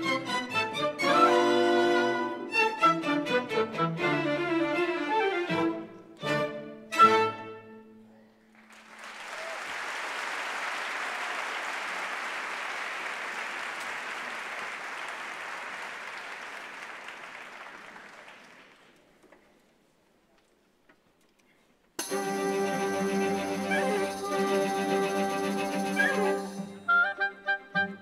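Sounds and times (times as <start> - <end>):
orchestra chords: 0.0 - 8.0, 22.0 - 28.0
audience applauding: 8.5 - 19.2.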